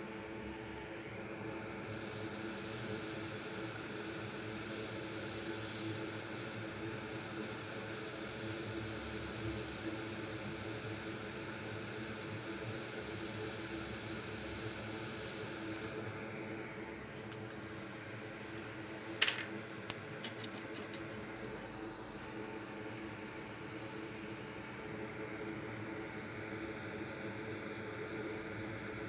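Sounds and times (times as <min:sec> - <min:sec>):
hot air station blowing: 0:00.8 - 0:08.4.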